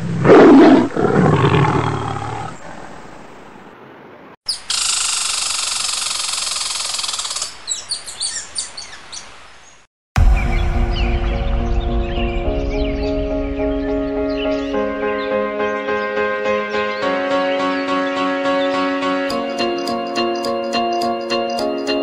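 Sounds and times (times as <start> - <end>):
tiger roar: 0.0 - 3.0.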